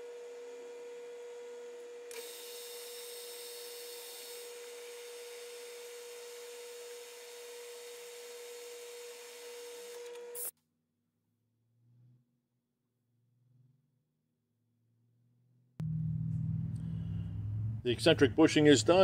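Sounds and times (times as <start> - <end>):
metal lathe whining: 0.0 - 10.5.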